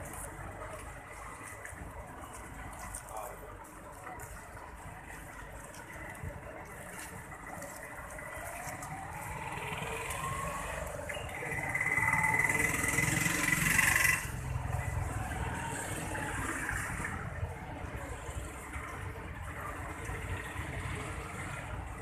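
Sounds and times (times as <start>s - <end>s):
motor vehicle whine: 7.3s - 22.0s.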